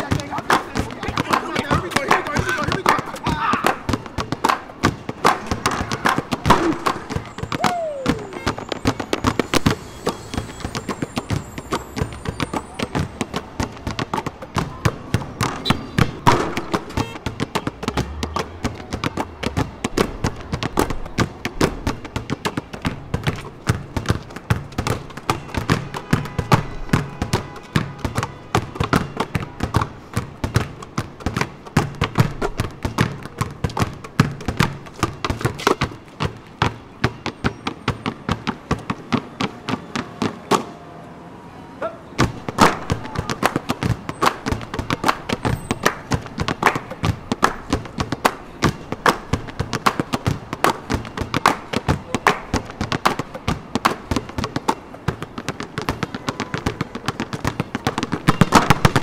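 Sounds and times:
basketballs bouncing on asphalt: 0.0 - 40.8, 42.2 - 59.0.

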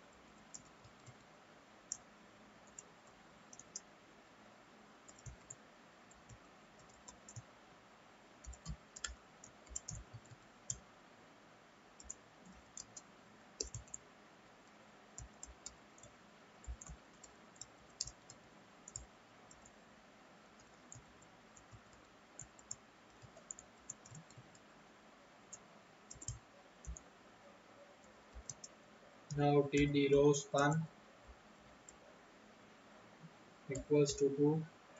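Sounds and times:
computer keyboard typing: 0.4 - 1.2, 2.6 - 3.9, 5.1 - 7.5, 8.4 - 10.8, 12.0 - 14.0, 14.6 - 19.8, 20.6 - 24.7, 25.5 - 27.0, 28.3 - 30.9, 33.7 - 34.3.

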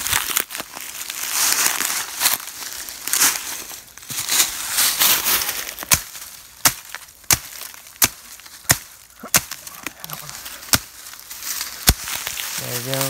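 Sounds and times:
dry leaves rustling and crunching: 0.0 - 13.0
blade chopping into branch: 5.8 - 9.7, 10.6 - 11.0, 11.8 - 12.3.

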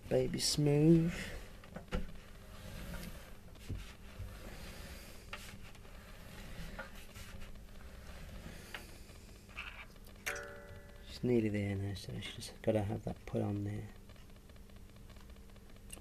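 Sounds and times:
faint steady hum: 0.0 - 16.0
rubbing: 2.2 - 9.9.

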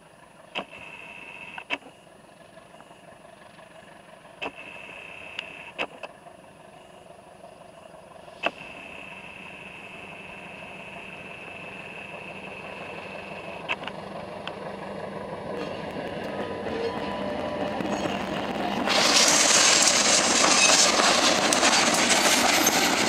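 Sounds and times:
train engine and running noise: 0.0 - 23.0
sharp clicks: 0.6 - 0.9, 4.4 - 6.2, 13.6 - 14.6
high-pitched tone: 15.5 - 18.6.

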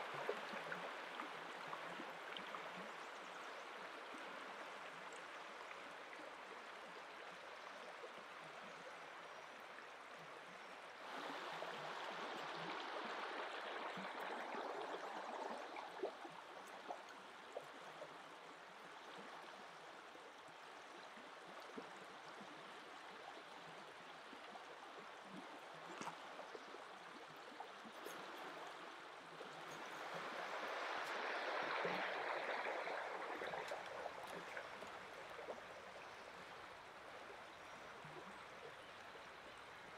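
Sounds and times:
river babbling over stones: 27.6 - 39.9.

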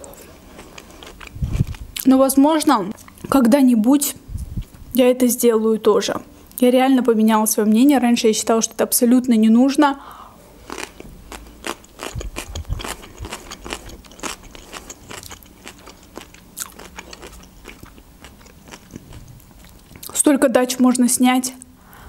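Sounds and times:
chewing crunchy cucumber: 0.0 - 2.1, 10.6 - 20.2.

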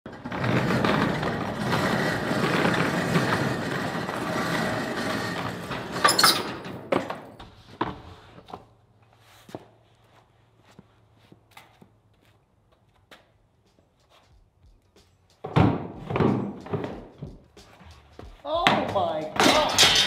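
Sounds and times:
roll-up door slats rattling: 0.1 - 6.9, 19.4 - 20.0
metal door clattering: 3.5 - 7.0, 19.4 - 20.0.

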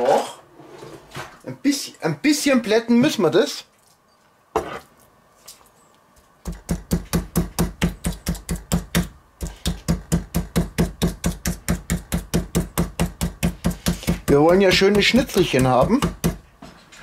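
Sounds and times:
meat mallet pounding on board: 6.4 - 16.4.

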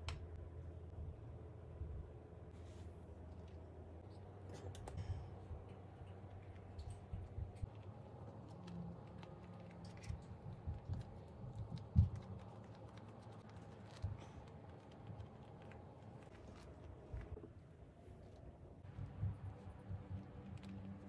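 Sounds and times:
hands rolling wet rice paper: 5.6 - 21.0.

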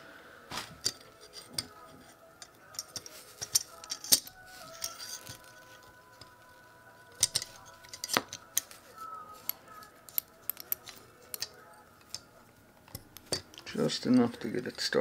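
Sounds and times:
small metal clicks and clinks: 2.4 - 6.4, 7.1 - 8.8, 9.4 - 12.3.

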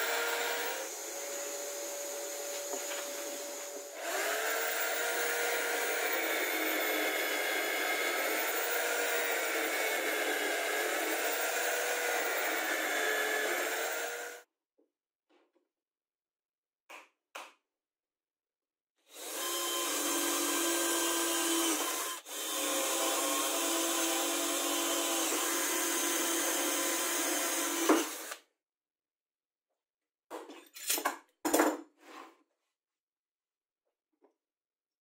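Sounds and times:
cordless drill boring wood: 0.0 - 14.4, 19.1 - 28.4.

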